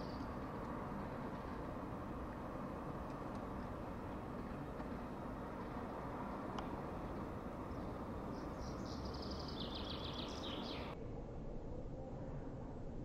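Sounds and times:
low outdoor rumble: 0:00.0 - 0:13.0
small bird chirping: 0:07.7 - 0:11.0.

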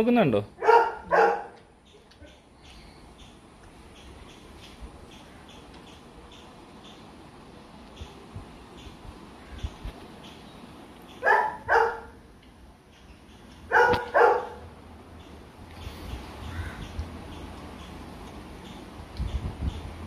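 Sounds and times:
dog barking: 0:00.6 - 0:01.6, 0:11.2 - 0:12.2, 0:13.7 - 0:14.6.

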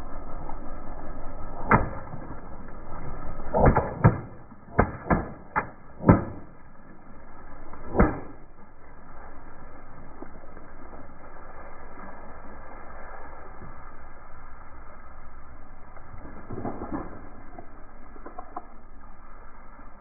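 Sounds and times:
water balloons popping: 0:03.5 - 0:06.6, 0:07.8 - 0:08.5.

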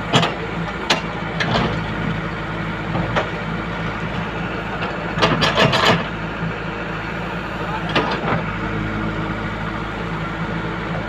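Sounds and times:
backhoe bucket clanks: 0:00.0 - 0:01.9, 0:04.7 - 0:06.2
diesel engine running: 0:00.0 - 0:11.0.

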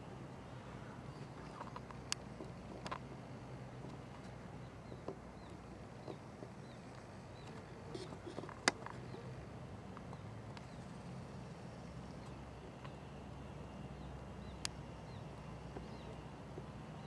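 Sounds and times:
faint clicks: 0:01.2 - 0:03.1, 0:09.9 - 0:11.0, 0:14.1 - 0:16.7.

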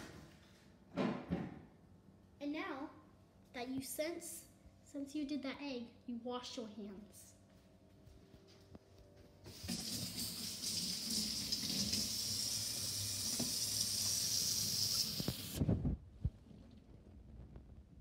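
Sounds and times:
faucet running into sink: 0:09.5 - 0:15.6.

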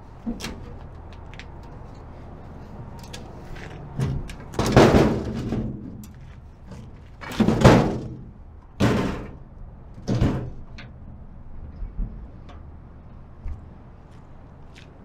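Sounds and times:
sheet-metal panels clanking: 0:04.0 - 0:06.1, 0:07.2 - 0:09.4, 0:10.0 - 0:10.9.

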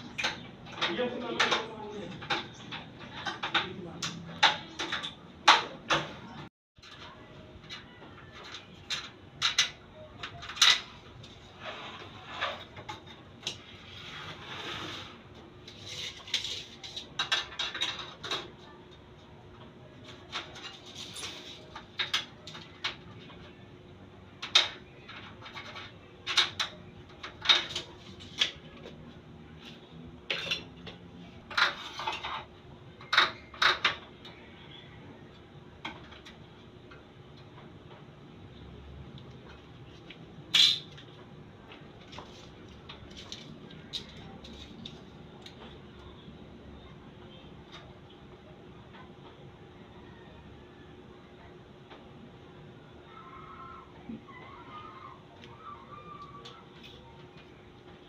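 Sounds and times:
metal scraping: 0:10.6 - 0:18.3.

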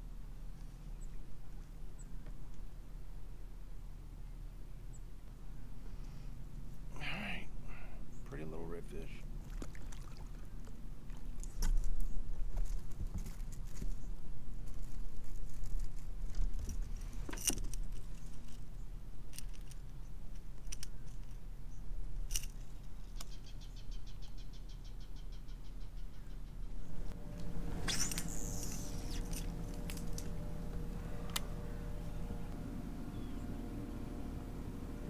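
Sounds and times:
fishing gear clicking in a kayak: 0:19.3 - 0:21.4
fishing reel ticking: 0:27.8 - 0:30.3.

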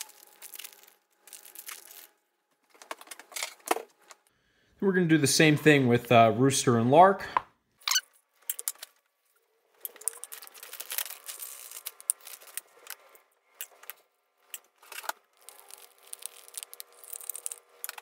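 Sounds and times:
frozen vegetables rattling into mug: 0:00.0 - 0:02.1, 0:09.9 - 0:12.7, 0:15.4 - 0:18.0.

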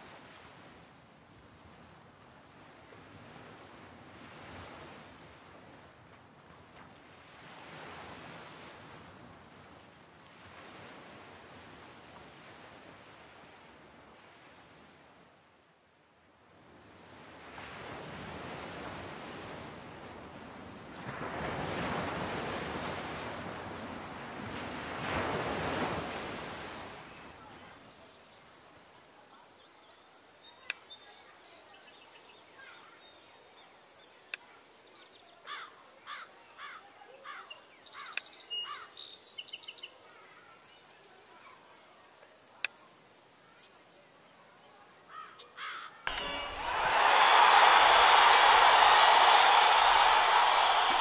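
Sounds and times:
rushing noise: 0:46.1 - 0:51.0.

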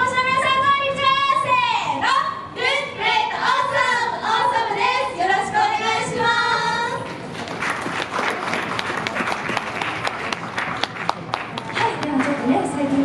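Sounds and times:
audience applause: 0:07.2 - 0:12.7.

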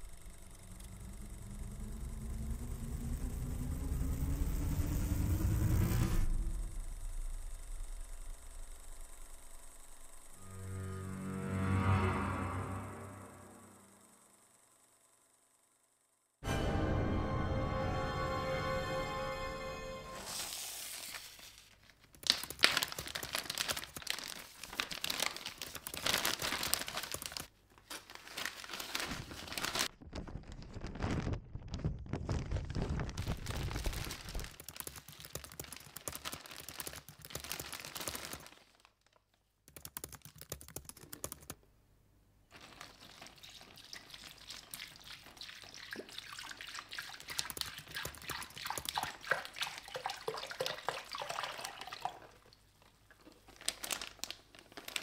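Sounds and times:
liquid pouring into bag: 0:20.3 - 0:38.8, 0:42.5 - 0:55.0
plastic bag crinkling: 0:20.3 - 0:39.4, 0:42.5 - 0:45.4, 0:47.3 - 0:55.0.

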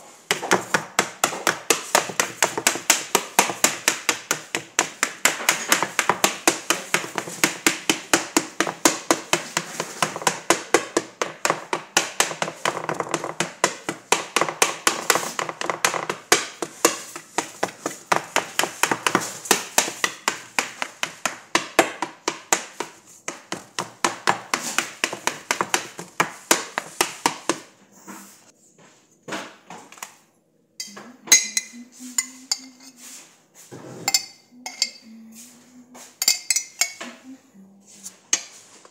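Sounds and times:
spoon clinking against jar: 0:30.8 - 0:32.9, 0:34.1 - 0:35.0, 0:36.2 - 0:37.0.

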